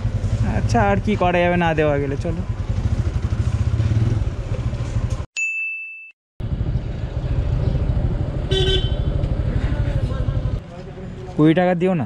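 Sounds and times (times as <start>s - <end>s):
motorcycle engine running: 0.0s - 5.3s, 6.4s - 10.7s
vehicle horn honking: 8.5s - 9.2s.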